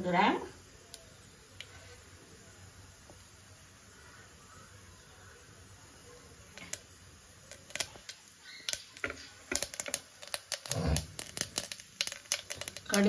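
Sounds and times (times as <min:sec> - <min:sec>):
mustard seeds popping in hot oil: 0:00.0 - 0:01.7, 0:06.4 - 0:13.0.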